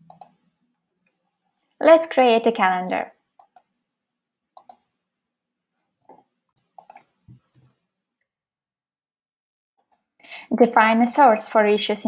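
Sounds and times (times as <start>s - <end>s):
computer mouse clicks: 0.0s - 0.4s, 3.4s - 3.7s, 4.6s - 4.9s, 6.5s - 8.3s.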